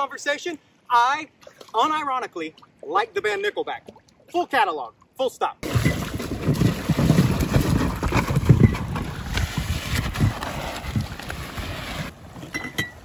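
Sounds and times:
plastic cooler dragged over rubble: 6.4s - 12.5s.

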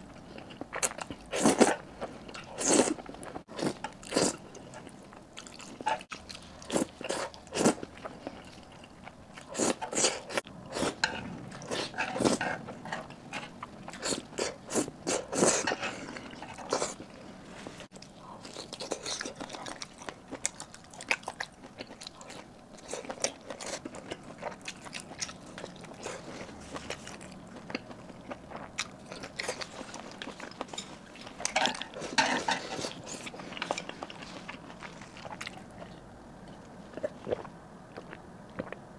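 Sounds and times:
chewing with wet mouth smacks: 17.9s - 38.8s.

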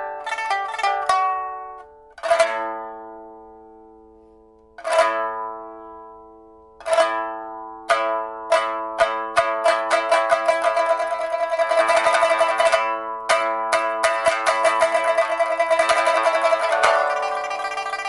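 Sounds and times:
pipa plucked and strummed: 0.0s - 18.0s.

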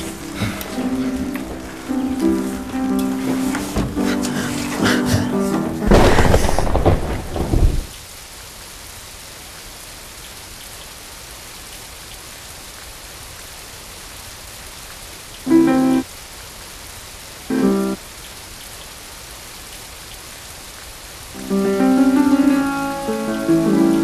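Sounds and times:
rain falling: 0.0s - 24.0s
thunder rumble: 5.7s - 8.0s.

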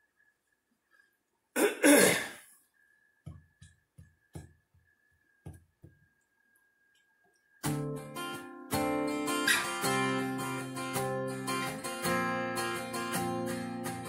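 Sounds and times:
man coughing and clearing throat: 1.6s - 2.5s.

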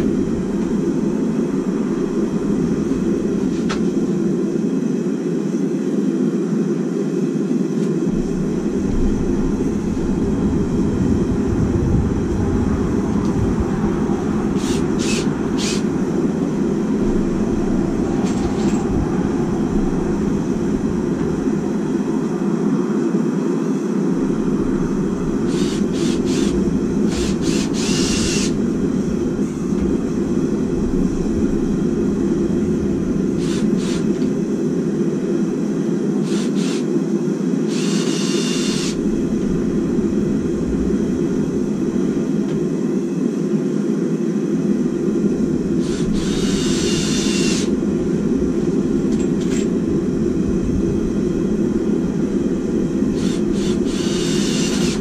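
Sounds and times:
loud steady low roar: 0.0s - 55.0s
power drill drilling into wood: 14.6s - 15.8s, 27.1s - 28.5s, 33.4s - 34.1s, 36.3s - 36.8s, 37.7s - 39.0s, 45.8s - 47.7s, 53.2s - 55.0s.

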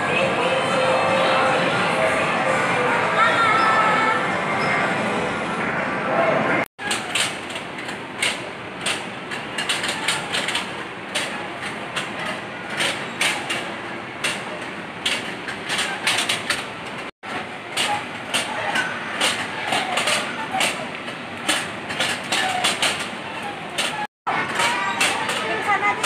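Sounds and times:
arcade game machines: 0.0s - 26.0s
sharp clicks and clacks: 6.8s - 26.0s.

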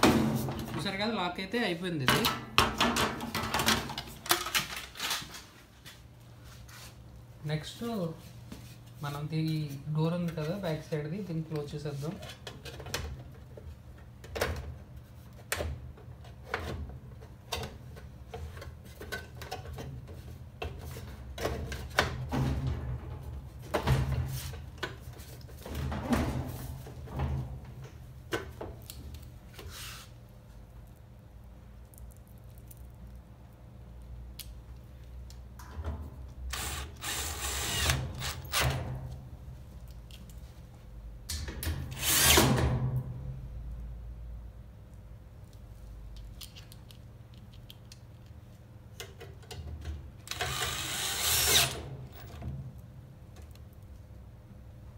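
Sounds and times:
drill driving screws into metal: 36.5s - 38.8s, 41.9s - 42.6s, 50.3s - 51.9s.

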